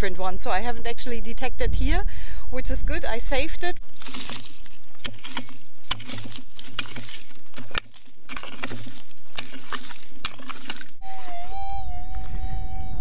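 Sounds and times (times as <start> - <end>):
pick striking stony ground: 3.8 - 11.6
steady wavering tone: 10.8 - 13.0.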